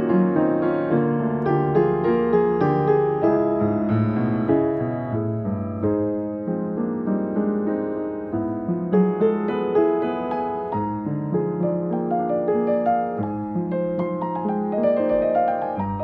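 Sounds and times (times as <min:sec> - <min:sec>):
jazz piano: 0:00.0 - 0:16.0.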